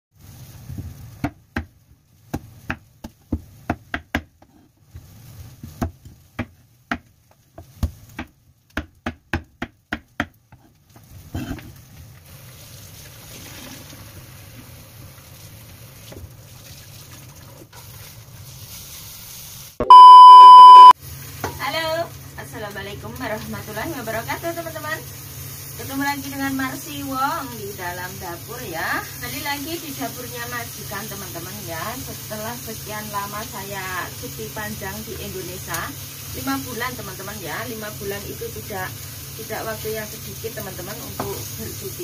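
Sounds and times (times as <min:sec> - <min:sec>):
knife chopping on wooden board: 0:02.3 - 0:04.6, 0:05.6 - 0:10.4
test-pattern beep tone: 0:19.8 - 0:21.0.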